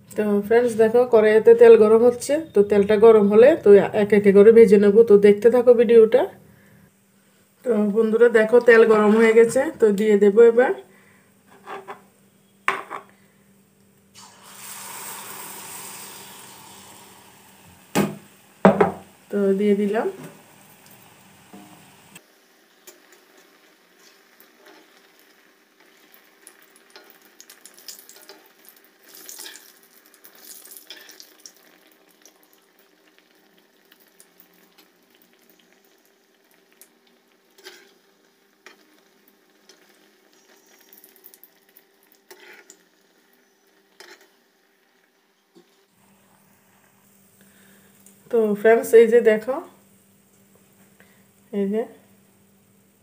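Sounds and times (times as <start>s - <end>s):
batter sizzling in hot oil: 14.1s - 53.0s.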